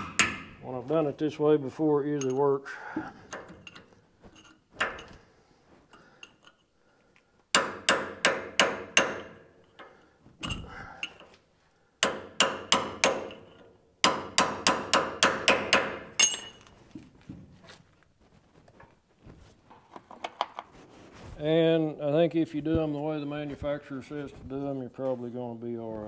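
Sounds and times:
hammer striking steel chisel: 0.0s - 0.5s, 7.5s - 9.5s, 12.0s - 16.7s.

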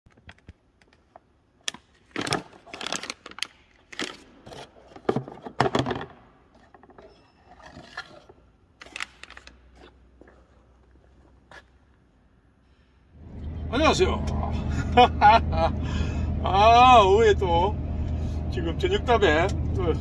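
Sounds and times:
plastic packaging crinkling: 2.0s - 4.4s.

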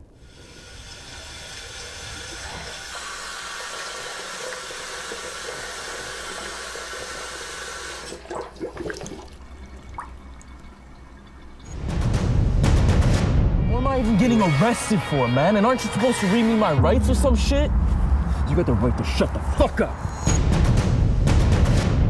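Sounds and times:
water rushing: 0.0s - 11.8s.

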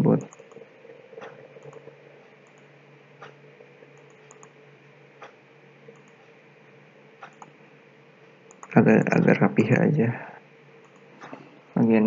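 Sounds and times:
low steady hum: 0.0s - 12.0s
computer mouse clicks: 0.1s - 0.6s, 1.2s - 4.6s, 5.2s - 6.3s, 7.2s - 7.6s, 8.5s - 8.8s, 10.8s - 11.4s.

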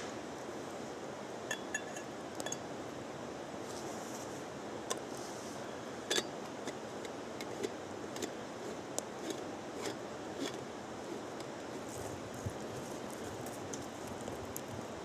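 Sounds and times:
steady background hiss: 0.0s - 15.0s
campfire crackling: 6.8s - 15.0s.

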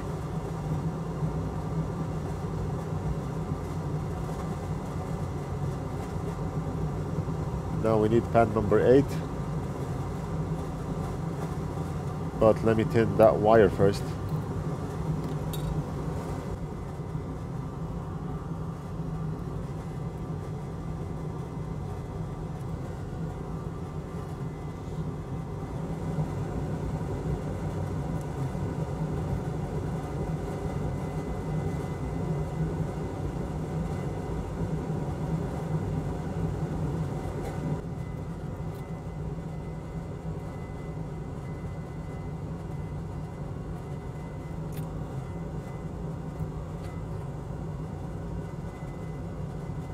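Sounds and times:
low machine hum: 0.0s - 49.9s.

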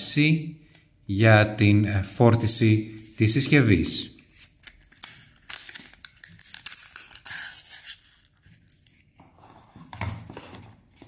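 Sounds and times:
cardboard and cable rustling: 9.2s - 11.0s.

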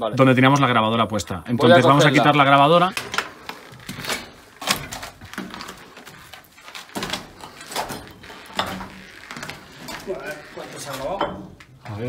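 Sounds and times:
footsteps on rubble: 2.9s - 11.8s.

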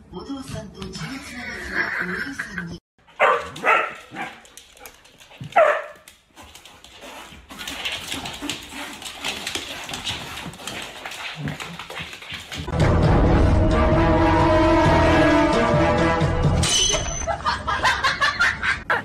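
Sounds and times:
dog barking: 3.1s - 4.4s, 5.5s - 6.0s.

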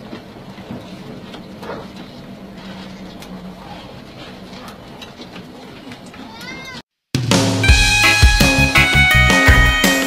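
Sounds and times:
knocks and rattles on rough road: 0.0s - 6.7s.

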